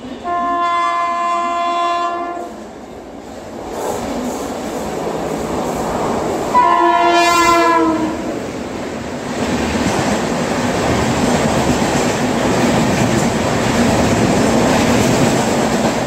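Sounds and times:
train running noise: 0:00.0 - 0:16.0
train air horn blasts: 0:00.1 - 0:02.6, 0:06.5 - 0:08.4.

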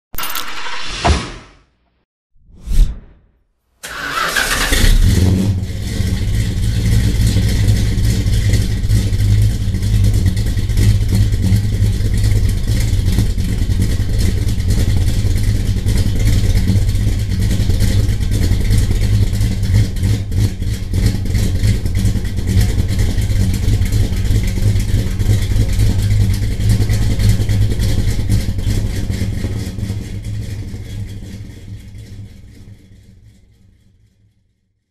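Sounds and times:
car engine rumbling: 0:03.9 - 0:33.2.

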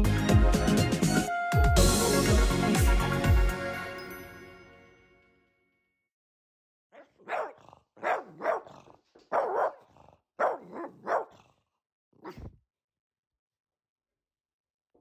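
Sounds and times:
dog barking: 0:06.9 - 0:11.5, 0:12.2 - 0:12.5.

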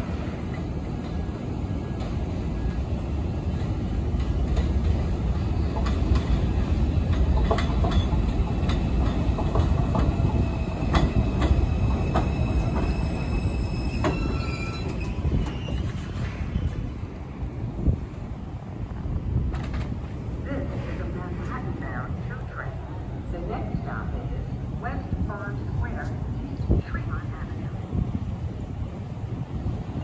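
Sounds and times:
subway train rumbling: 0:00.0 - 0:30.0
wheels clicking over rail joints: 0:00.4 - 0:13.1.

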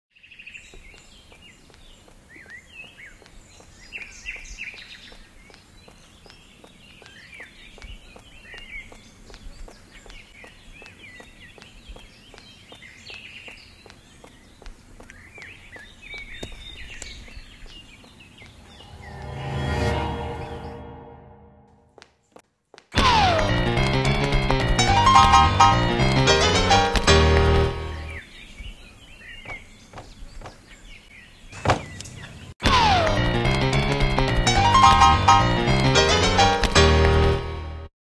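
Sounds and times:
small birds chirping: 0:00.1 - 0:19.3, 0:27.6 - 0:32.6
running footsteps: 0:00.6 - 0:18.7, 0:21.9 - 0:30.8, 0:31.6 - 0:37.6.

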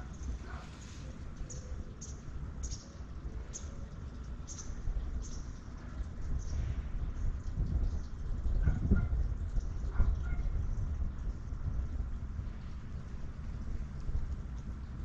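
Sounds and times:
wind rumbling on microphone: 0:04.6 - 0:15.0.

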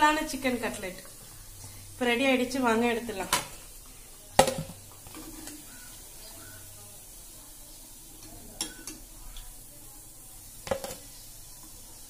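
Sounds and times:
faint steady hiss: 0:00.0 - 0:12.0
food and utensil clattering on plate: 0:10.6 - 0:11.1.

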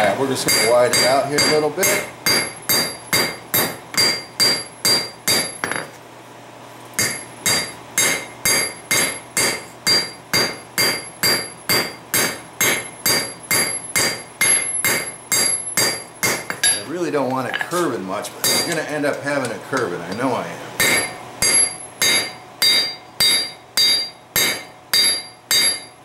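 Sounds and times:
hammer blows on anvil: 0:00.5 - 0:05.9, 0:07.0 - 0:16.9, 0:18.4 - 0:26.0
bright metallic ring: 0:20.8 - 0:26.0.

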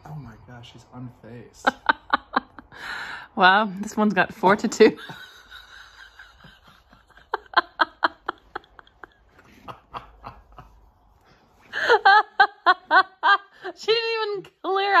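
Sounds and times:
person laughing: 0:05.0 - 0:10.8.

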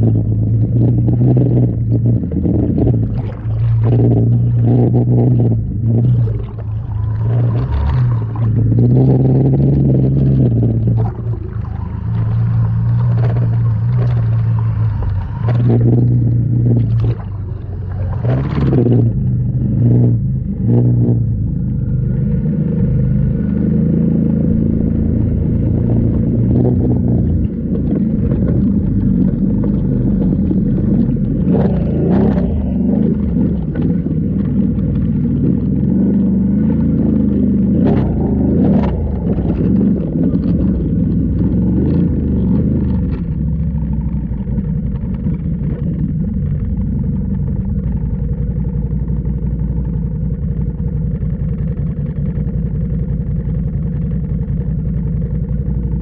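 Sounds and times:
vehicle motor running: 0:00.0 - 0:56.0.

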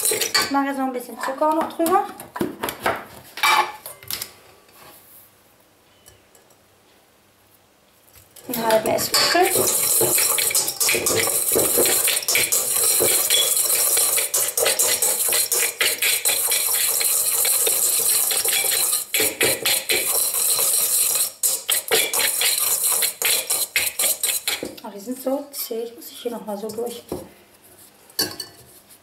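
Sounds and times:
whisk scraping metal bowl: 0:00.0 - 0:00.4, 0:08.5 - 0:24.8.

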